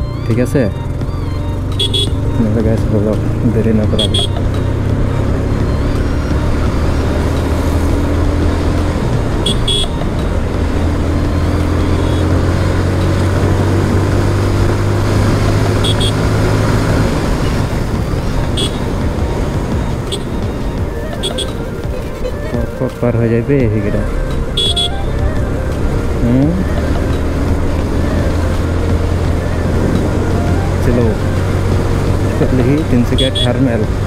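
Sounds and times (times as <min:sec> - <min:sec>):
motorcycle engine cruising: 0:00.0 - 0:34.0
horn toots: 0:01.7 - 0:02.6, 0:03.8 - 0:04.5, 0:09.3 - 0:10.2, 0:11.4 - 0:12.5, 0:15.3 - 0:16.8, 0:18.4 - 0:19.0, 0:19.9 - 0:20.4, 0:21.1 - 0:22.2, 0:24.4 - 0:25.6, 0:33.1 - 0:33.9.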